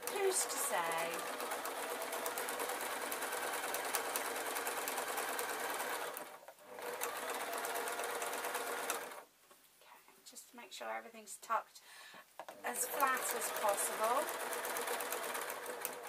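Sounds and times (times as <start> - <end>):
sewing machine stitching: 0.0 - 9.2, 12.6 - 16.0.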